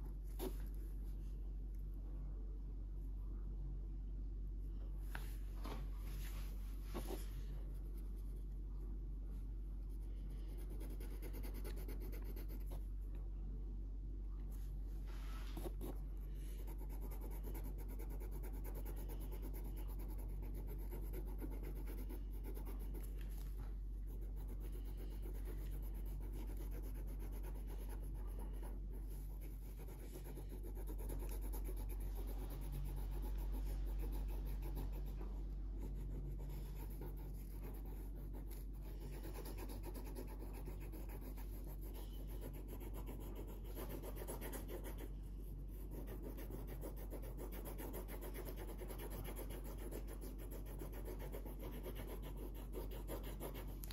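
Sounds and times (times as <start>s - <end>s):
steady low hum: 0.0s - 53.9s
felt-tip marker scratching paper: 10.0s - 12.8s, 15.6s - 53.9s.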